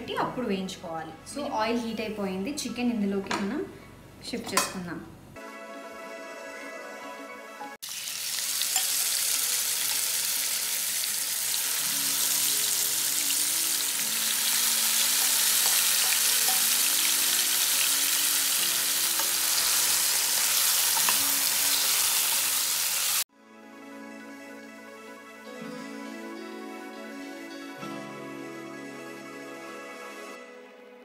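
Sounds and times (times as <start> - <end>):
faint background music: 0.0 - 7.8
chicken sizzling in hot oil: 7.8 - 23.3.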